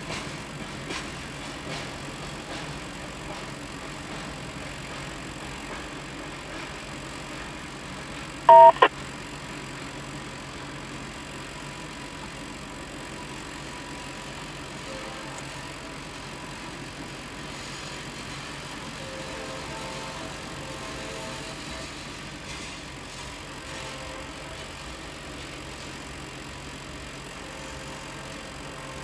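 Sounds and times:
train wheels rolling on rails: 0.0 - 8.5, 9.3 - 29.0
loud pitched beep: 8.5 - 8.9.

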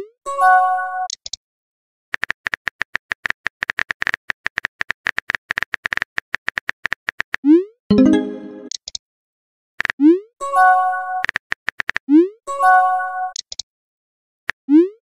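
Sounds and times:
pitched pop sound effect: 7.9 - 8.7.

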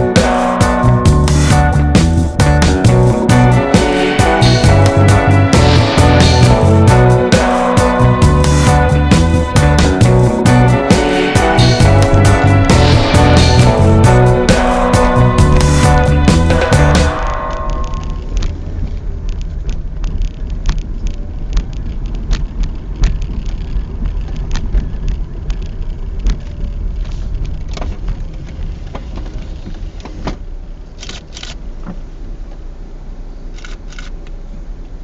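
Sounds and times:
car rumbling on uneven road: 11.5 - 35.0.

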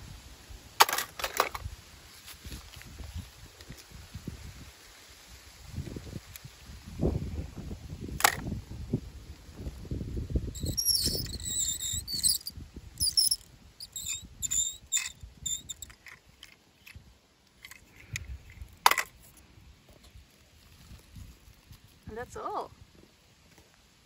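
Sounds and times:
toy car clinking in basket: 0.8 - 1.6, 10.6 - 17.0
short high chirps: 10.6 - 15.9.

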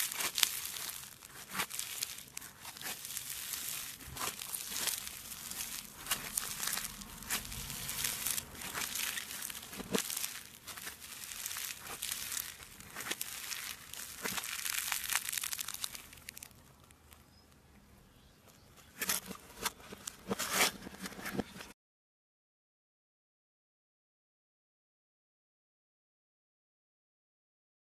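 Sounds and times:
slime crackling: 0.0 - 17.5.

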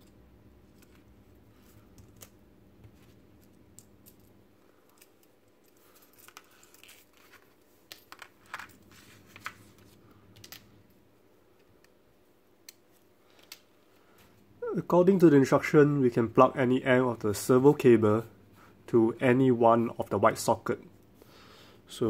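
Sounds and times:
light rustling of cable: 0.6 - 10.7.

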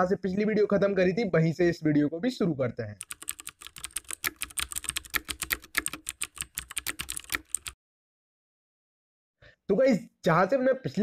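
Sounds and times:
keyboard typing: 3.0 - 7.8.

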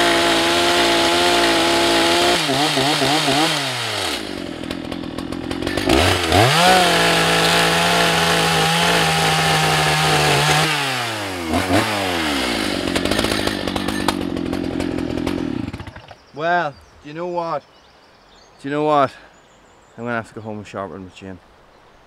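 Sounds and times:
chainsaw cutting log: 0.0 - 16.2.

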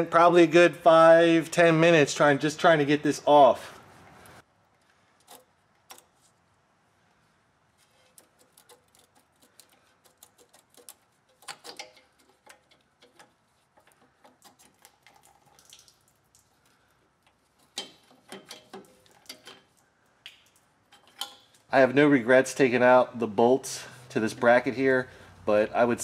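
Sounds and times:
fuel dribbling: 8.2 - 21.7.

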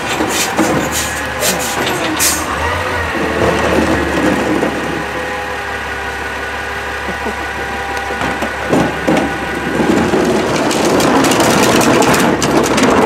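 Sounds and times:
cart clattering into hopper: 0.0 - 5.4, 8.1 - 13.0
truck engine idling: 0.0 - 13.0.

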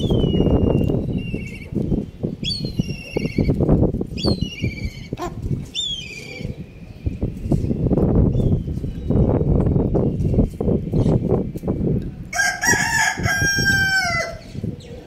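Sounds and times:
high warbling bird calls: 0.0 - 11.4.

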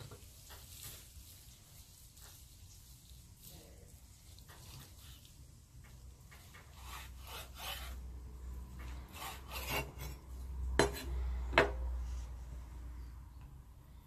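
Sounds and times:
rough scraping strokes: 6.4 - 12.5.

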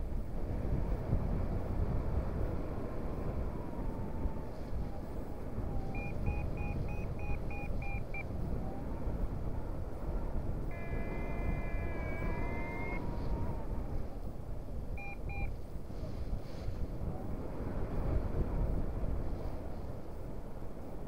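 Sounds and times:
wind rushing over microphone: 0.0 - 21.0
variometer beeping: 5.9 - 8.3, 10.7 - 13.6, 15.0 - 15.5.

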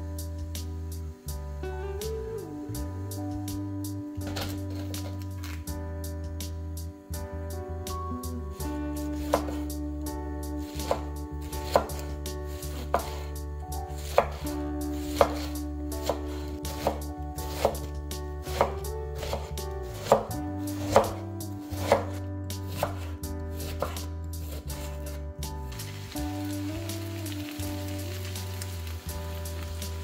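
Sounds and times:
knife slicing cabbage: 9.2 - 9.7, 10.6 - 13.3, 13.9 - 25.2.

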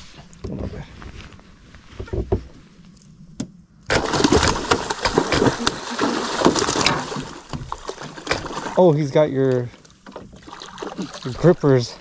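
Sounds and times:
fish splashing in water: 3.9 - 8.8, 10.0 - 11.4.

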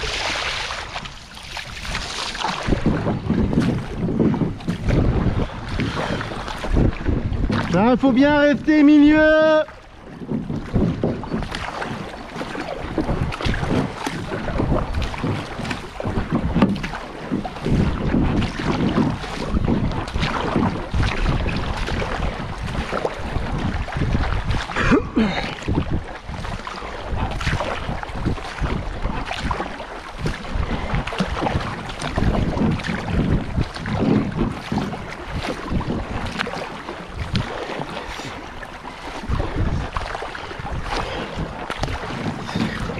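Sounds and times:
river current rushing: 0.0 - 2.8
sharp water splashes: 0.0 - 42.9
wind buffeting microphone: 0.0 - 42.9.

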